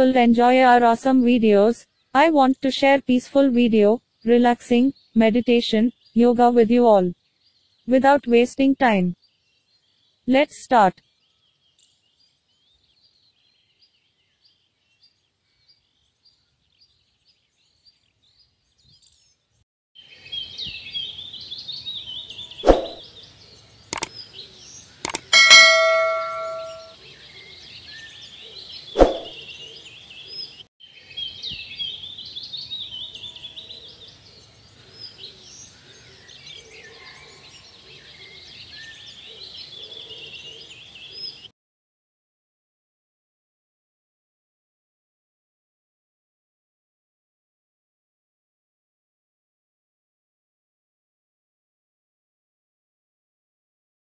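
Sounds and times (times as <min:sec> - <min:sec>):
birds chirping: 0:20.4 - 0:30.6
sharp clicks: 0:23.9 - 0:24.1, 0:25.0 - 0:25.3
bell ding: 0:25.3 - 0:26.9.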